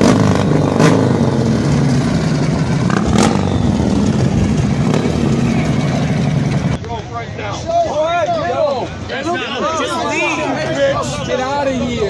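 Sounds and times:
exhaust bang: 0.0s - 6.8s
motorcycle engine revving high: 0.0s - 6.8s.

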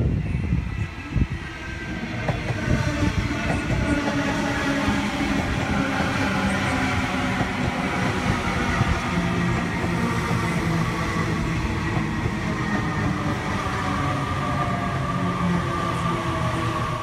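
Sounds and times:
train wheels rumbling on rail: 0.0s - 17.0s.

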